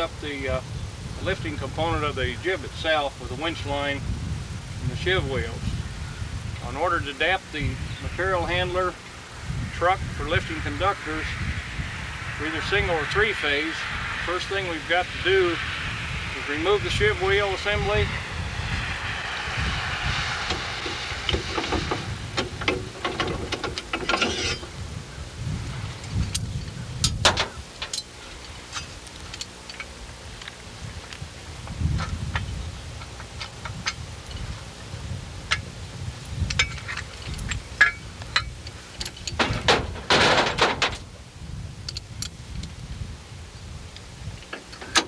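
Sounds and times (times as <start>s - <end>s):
low steady rumble: 0.0s - 45.0s
rushing scraping noise: 6.6s - 24.9s
metal clanks and clicks: 21.3s - 24.7s, 27.0s - 28.1s.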